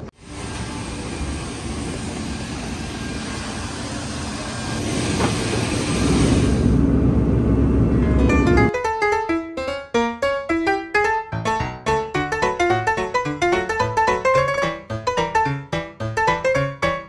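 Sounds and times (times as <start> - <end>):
jet airliner rushing noise: 0.0 - 8.7
jet rumble in cabin: 0.0 - 8.7.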